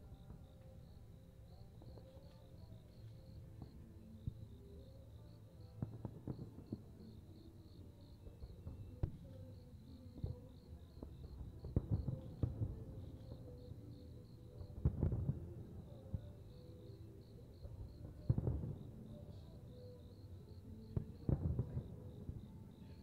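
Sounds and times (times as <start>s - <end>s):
crickets chirping: 0.0s - 23.0s
fireworks bursting: 5.8s - 7.3s, 10.2s - 13.8s, 14.6s - 16.4s, 17.6s - 19.6s, 21.0s - 22.4s.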